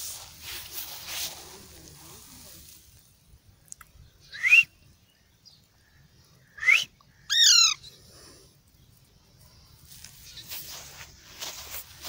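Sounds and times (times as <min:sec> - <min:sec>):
person whistling: 0:04.4 - 0:04.7, 0:06.6 - 0:06.9.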